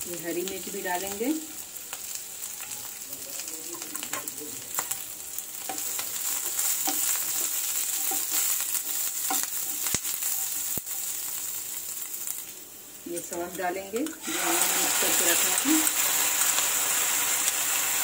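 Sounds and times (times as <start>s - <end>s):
vegetables sizzling in oil: 0.0s - 18.0s
spatula scraping pan: 5.7s - 11.2s.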